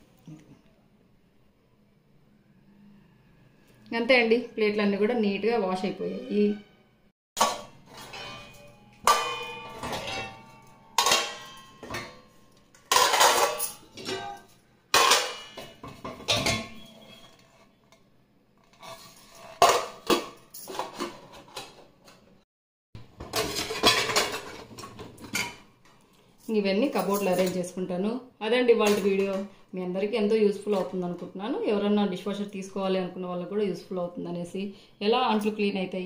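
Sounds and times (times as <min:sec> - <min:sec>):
steel plates and utensils clanking: 0:07.4 - 0:17.8, 0:23.2 - 0:25.7.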